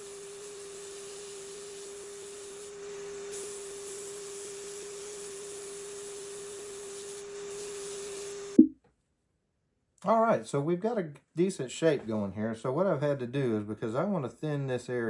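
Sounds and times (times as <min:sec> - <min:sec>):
sandpaper sanding hiss: 0:00.0 - 0:08.5.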